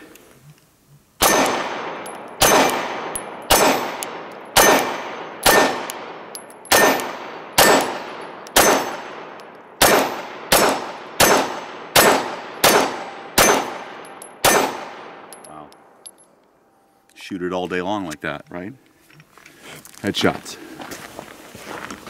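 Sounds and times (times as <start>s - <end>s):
pistol shots echoing: 1.2s - 15.4s.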